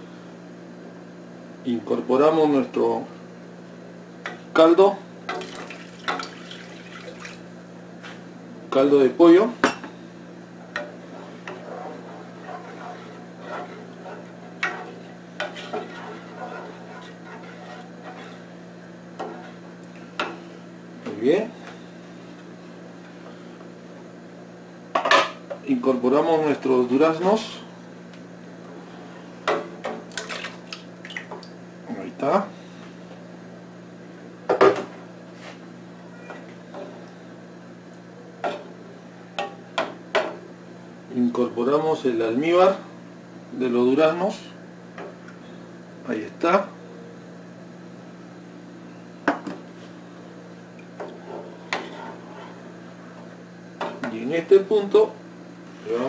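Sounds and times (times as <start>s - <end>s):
steady low hum: 0.0s - 56.0s
spoon swishing through liquid: 11.1s - 18.5s.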